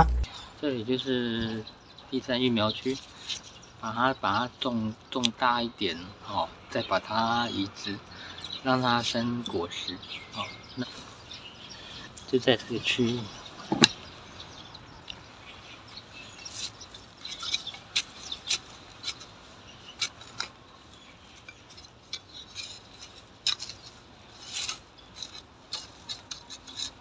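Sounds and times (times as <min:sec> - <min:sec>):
trowel scraping in gritty soil: 0:16.2 - 0:27.0.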